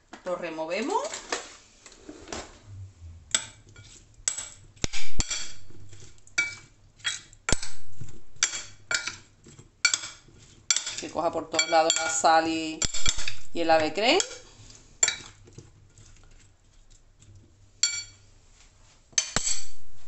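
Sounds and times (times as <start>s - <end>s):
teaspoon clinking against glass bowl: 5.2s - 7.8s, 8.4s - 9.2s, 9.8s - 14.4s, 17.8s - 18.2s.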